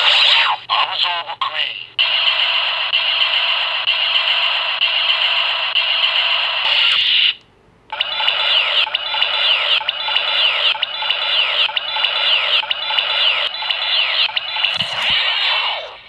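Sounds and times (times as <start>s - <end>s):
steady electronic tone: 7.9s - 16.0s.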